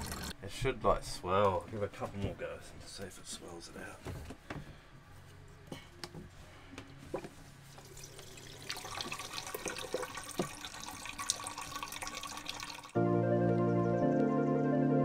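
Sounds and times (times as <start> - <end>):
fuel trickling into plastic cup: 7.7 - 13.0.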